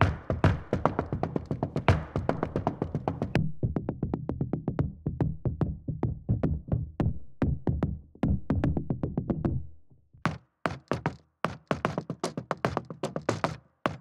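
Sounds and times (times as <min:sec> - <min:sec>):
tap shoes on floor: 0:00.0 - 0:03.4, 0:10.3 - 0:14.0.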